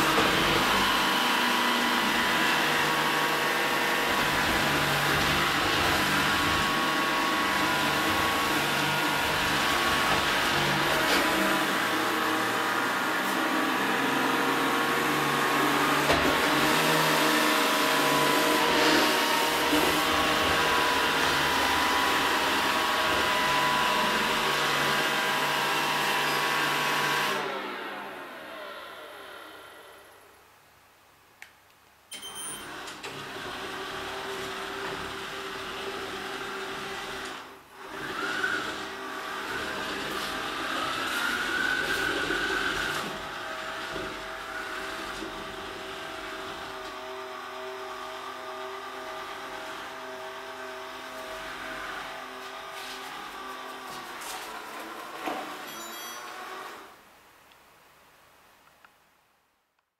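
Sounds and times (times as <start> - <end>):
robot vacuum whirring: 33.1 - 56.9.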